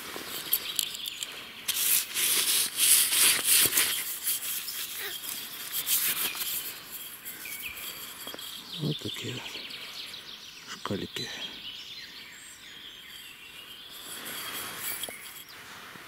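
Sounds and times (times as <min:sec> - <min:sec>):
hands scraping soil: 0:00.0 - 0:09.6, 0:13.2 - 0:15.6.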